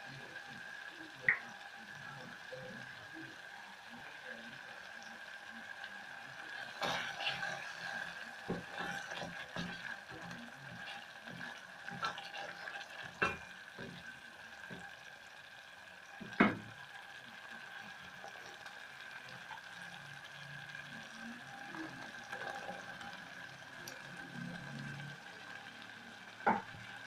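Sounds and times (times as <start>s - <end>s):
sauce sizzling in a pot: 0.0s - 27.0s
wooden spoon stirring: 6.5s - 14.9s.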